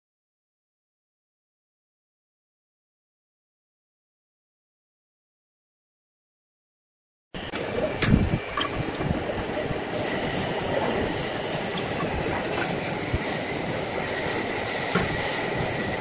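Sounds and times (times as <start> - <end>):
wood lathe running: 7.4 - 16.0.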